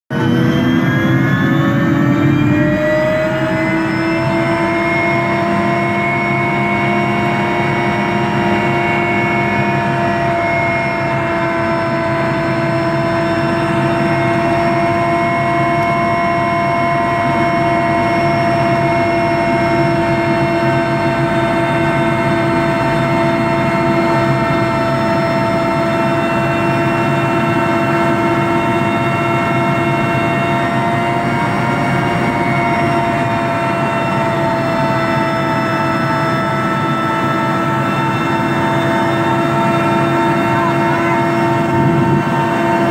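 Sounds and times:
helicopter rotor rush: 0.1 - 42.9
helicopter turbine whine: 0.1 - 42.9.

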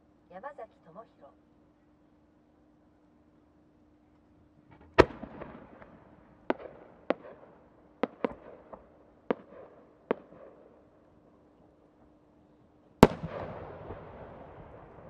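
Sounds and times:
sharp firework pops: 4.7 - 10.6, 13.0 - 14.0.

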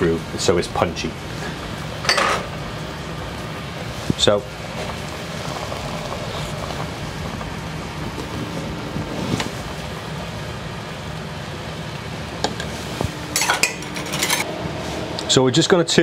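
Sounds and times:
broth boiling and bubbling: 0.0 - 16.0
utensils clicking against pan: 13.3 - 14.4.

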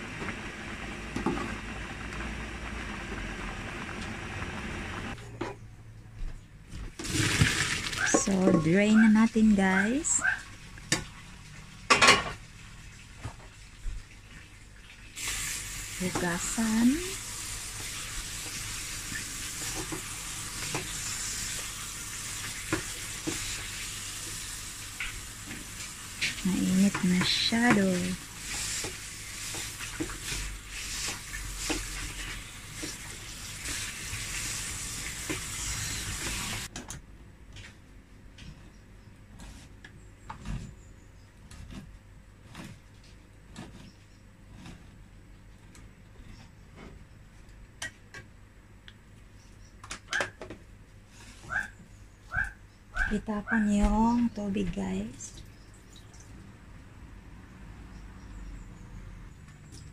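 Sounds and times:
tap water running: 0.0 - 5.2, 7.0 - 36.7, 55.3 - 56.5.

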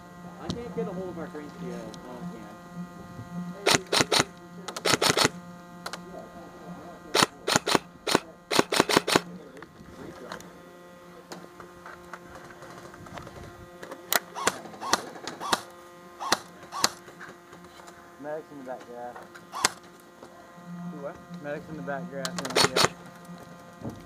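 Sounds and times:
airsoft rifles firing: 3.6 - 5.4, 7.1 - 9.3, 14.1 - 17.0, 19.5 - 19.8, 22.4 - 23.0.

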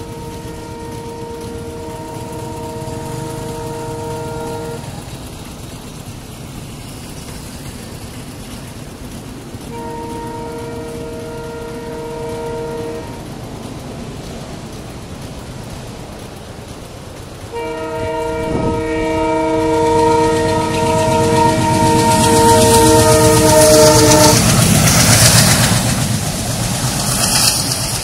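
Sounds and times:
train horn blasts: 0.0 - 5.2, 9.6 - 13.3, 17.5 - 25.6.

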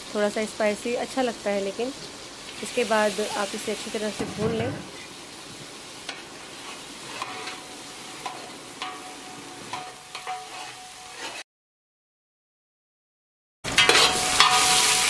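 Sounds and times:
oil sizzling in a pot: 0.0 - 11.4, 13.7 - 15.0
metal spoon scraping and knocking pot: 9.7 - 11.4, 13.7 - 14.8.

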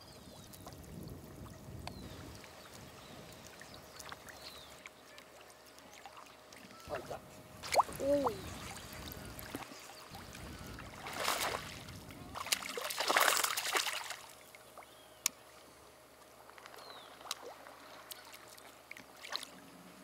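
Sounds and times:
faint lapping water: 0.0 - 20.0
fish splashing water: 6.9 - 14.4.

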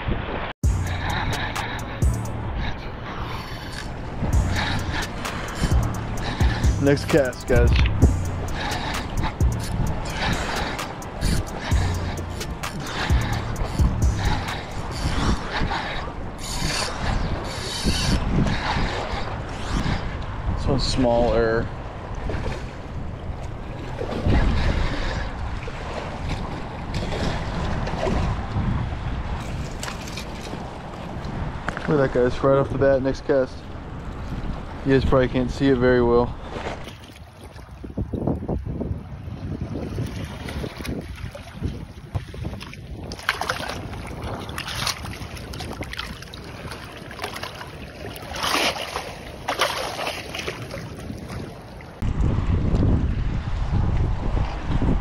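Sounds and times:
seawater splashing and sloshing: 0.0 - 55.0
wind buffeting microphone: 0.0 - 55.0
lapping water: 0.8 - 20.2, 39.9 - 52.0.

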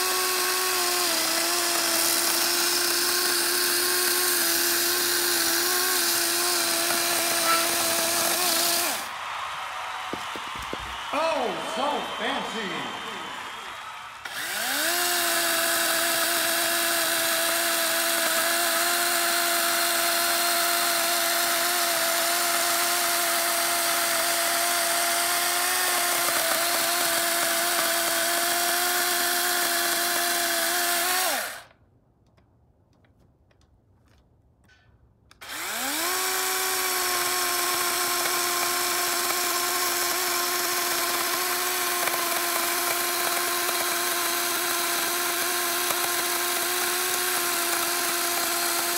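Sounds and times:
battery chainsaw cutting log: 0.0 - 9.2, 9.9 - 13.6, 14.2 - 31.8, 35.4 - 48.9.

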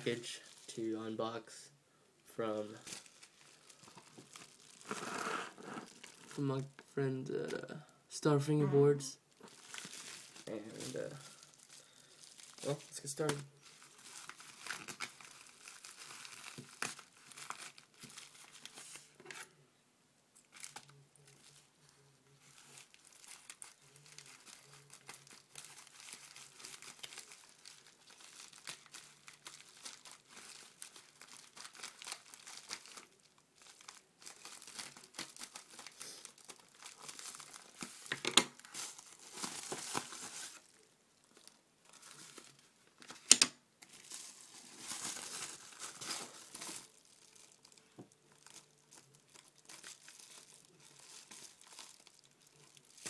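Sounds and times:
paper envelope crinkling: 2.8 - 6.4, 9.4 - 19.5, 20.5 - 53.0
paper ripping: 3.9 - 6.4.

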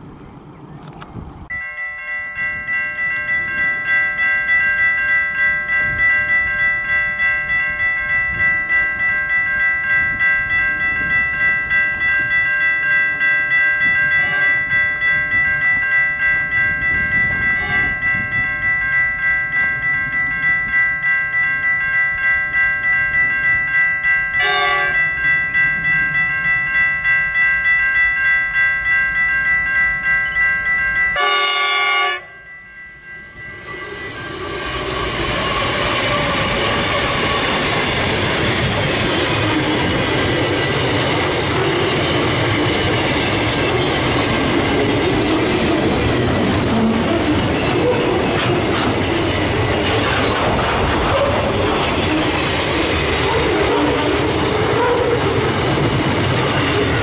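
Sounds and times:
level crossing bells ringing: 1.5 - 57.0
train horn blasts: 14.2 - 14.6, 17.6 - 18.0, 24.4 - 25.1, 31.2 - 32.5, 54.8 - 55.3.

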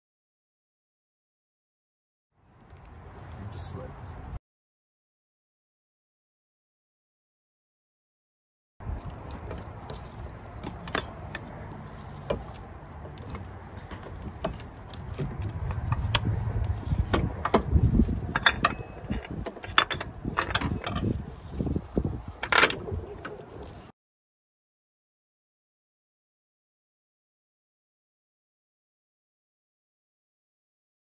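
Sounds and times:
handling and rubbing noise: 8.8 - 23.9
metal clinks and clicks: 9.0 - 23.6.

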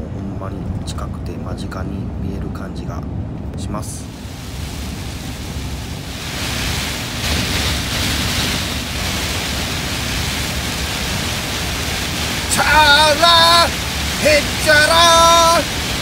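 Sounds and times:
truck cab rushing noise: 4.0 - 16.0.

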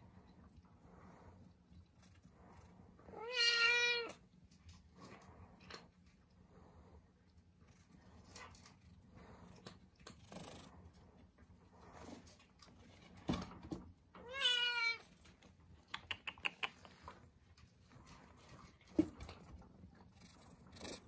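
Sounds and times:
kitten meowing: 3.2 - 4.1.

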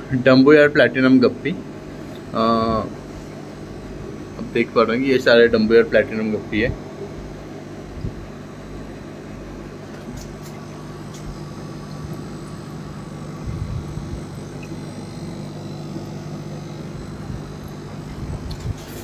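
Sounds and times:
air pumps humming: 0.0 - 19.0
air bubbling in fish tanks: 6.4 - 19.0.

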